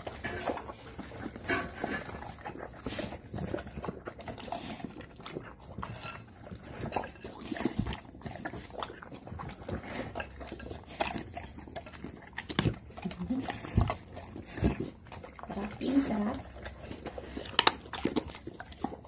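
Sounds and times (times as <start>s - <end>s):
dog chewing and slurping: 0.0s - 19.0s.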